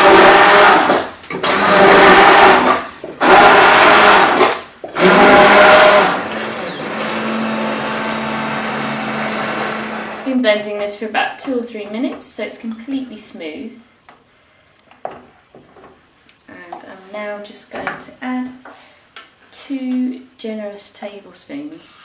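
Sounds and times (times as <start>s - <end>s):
stick blender motor whine: 0.0s - 10.3s.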